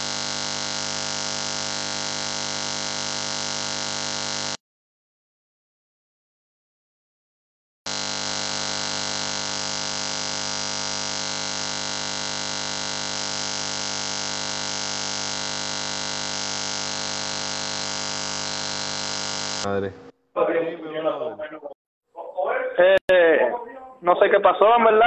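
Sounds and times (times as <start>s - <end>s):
electronic buzzing hiss: 0.0s - 4.6s, 7.9s - 19.7s.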